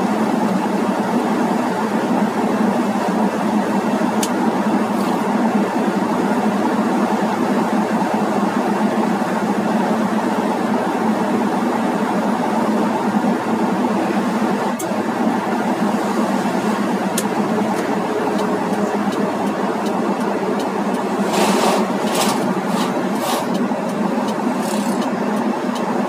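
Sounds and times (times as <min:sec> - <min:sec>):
engine and road noise: 0:00.0 - 0:26.0.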